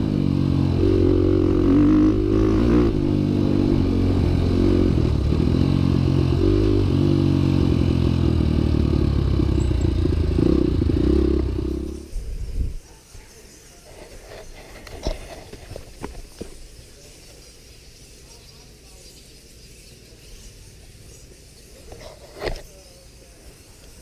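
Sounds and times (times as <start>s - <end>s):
motorcycle engine revving: 0.0s - 12.2s.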